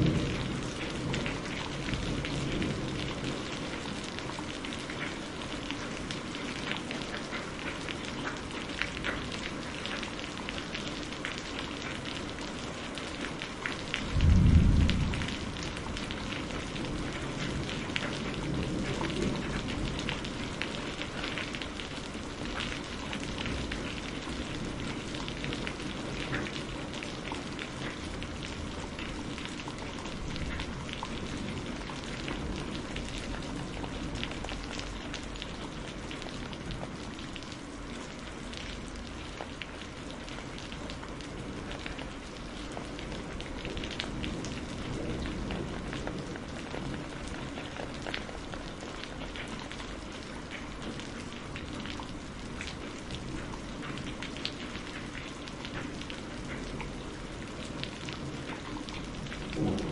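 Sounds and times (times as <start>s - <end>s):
thunder crack and rumble: 0.0s - 4.4s, 14.0s - 21.4s, 42.9s - 48.8s, 55.8s - 59.9s
rain pattering: 0.0s - 59.9s.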